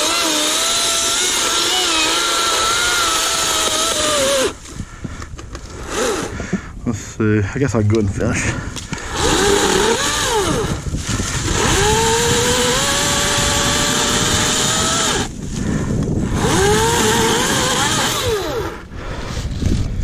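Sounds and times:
chainsaw revving: 0.0 - 4.6, 5.7 - 6.4, 9.0 - 15.4, 16.2 - 18.8.

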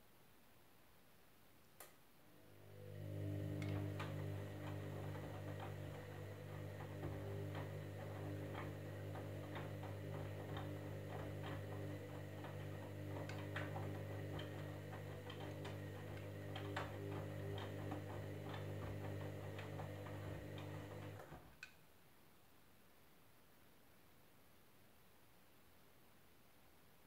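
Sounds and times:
washing machine motor hum: 2.3 - 21.4.

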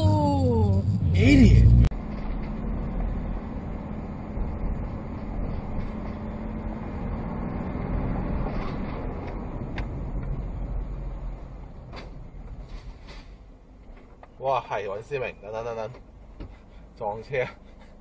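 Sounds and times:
vehicle road rumble: 0.0 - 18.0.

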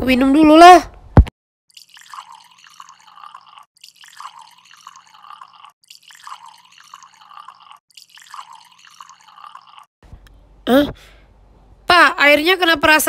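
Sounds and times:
gulping liquid from plastic bottle: 1.7 - 9.9.

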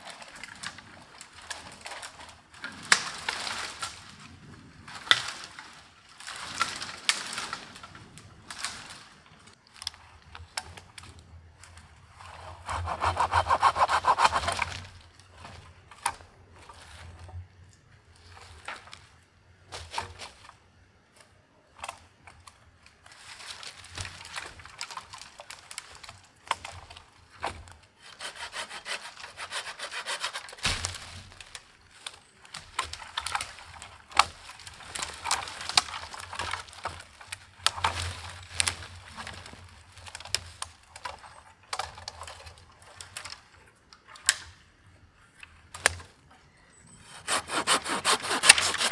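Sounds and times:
hand saw rasping through wood: 12.4 - 14.6, 28.0 - 30.6, 47.0 - 48.9
wood cracking: 12.4 - 15.2, 28.3 - 44.5, 47.1 - 48.9.

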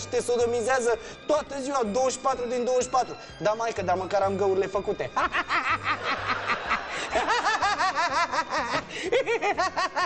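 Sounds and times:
man laughing hard: 5.2 - 10.0.

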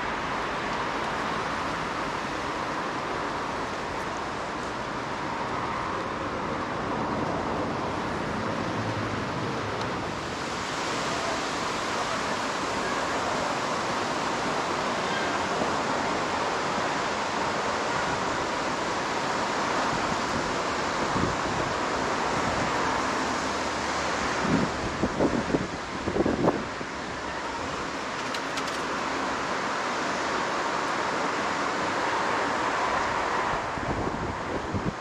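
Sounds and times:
wind on microphone: 24.3 - 27.3, 33.4 - 35.0.

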